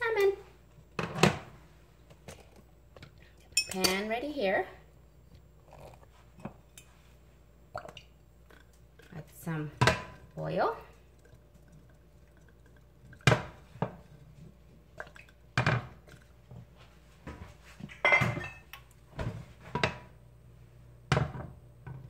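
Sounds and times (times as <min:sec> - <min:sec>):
glass bottle and cookware clinks: 0:03.6 - 0:04.0, 0:17.9 - 0:18.7.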